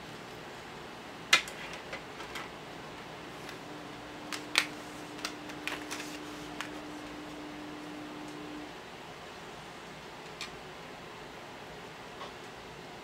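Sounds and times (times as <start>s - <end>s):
faint steady hum: 0.0s - 13.0s
steady hiss: 2.5s - 12.0s.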